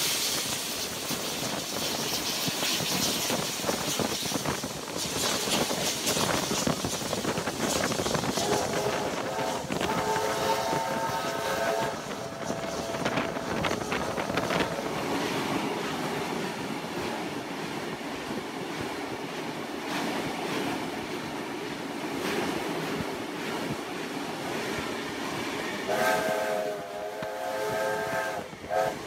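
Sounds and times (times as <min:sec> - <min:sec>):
train wheels rumbling on rails: 0:00.0 - 0:29.0
steam locomotive whistle: 0:08.2 - 0:15.0, 0:25.9 - 0:29.0.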